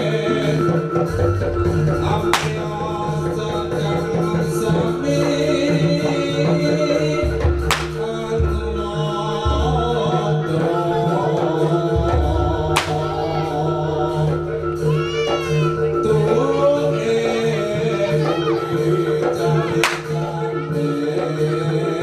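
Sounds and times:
deep drum beats: 0:00.0 - 0:21.9
gamelan ensemble tones: 0:00.0 - 0:22.0
person singing: 0:00.0 - 0:22.0
sharp cracks: 0:02.4 - 0:02.6, 0:07.7 - 0:08.0, 0:12.8 - 0:13.0.

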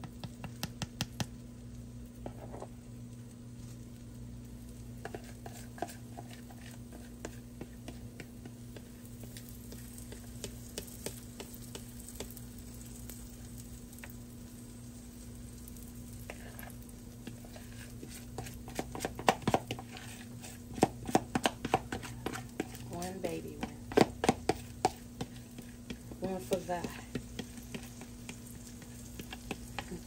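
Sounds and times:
batter sizzling on a griddle: 0:00.0 - 0:30.0
steady low hum: 0:01.2 - 0:30.0.

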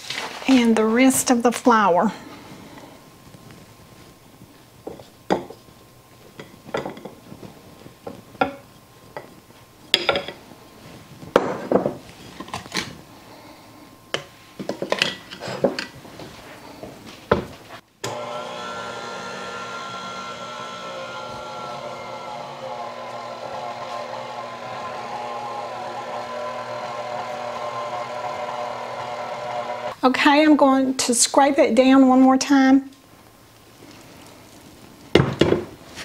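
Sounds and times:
stand mixer motor running: 0:18.1 - 0:30.0.

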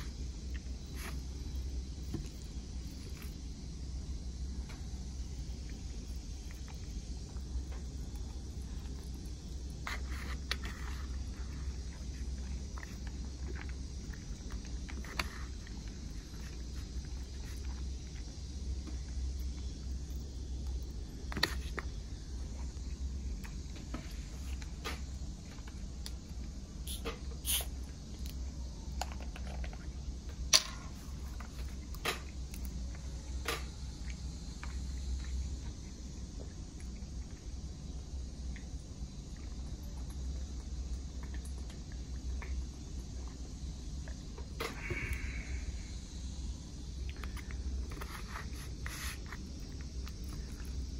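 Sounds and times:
low background rumble: 0:00.0 - 0:50.9.

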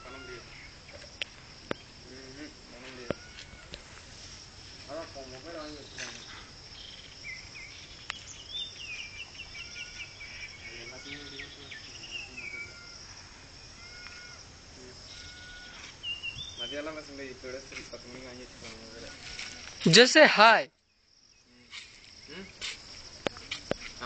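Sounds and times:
insect chirring: 0:00.0 - 0:24.0
high chirping calls: 0:05.6 - 0:13.0, 0:15.0 - 0:17.0.

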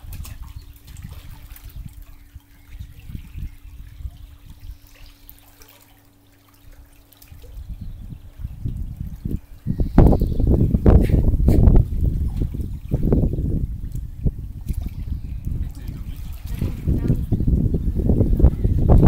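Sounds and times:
pool water splashing and trickling: 0:00.0 - 0:19.0
low rumbling bumps: 0:07.4 - 0:19.0.

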